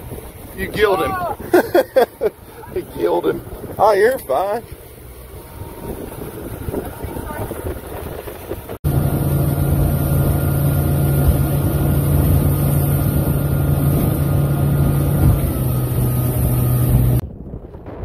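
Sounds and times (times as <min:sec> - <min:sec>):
outboard motor running: 0:00.0 - 0:17.2
wind and water hiss: 0:00.0 - 0:17.2.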